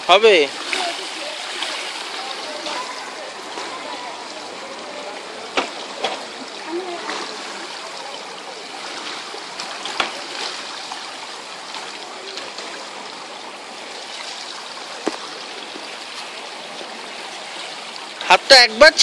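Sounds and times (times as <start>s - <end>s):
water sloshing and splashing: 0.0s - 19.0s
water slaps: 0.5s - 4.0s, 8.9s - 11.0s, 15.0s - 16.4s.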